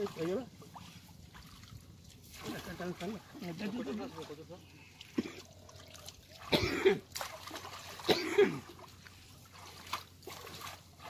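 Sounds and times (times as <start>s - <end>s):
faint trickling water: 0.0s - 11.0s.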